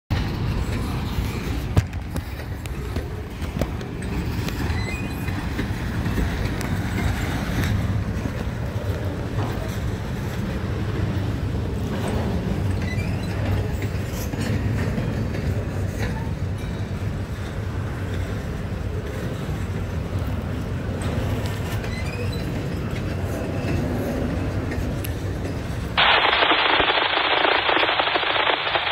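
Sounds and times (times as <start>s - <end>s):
train railcars rumbling past: 0.1s - 26.0s
wheels clicking over rail joints: 0.1s - 26.0s
faint high squeals: 4.7s - 5.4s.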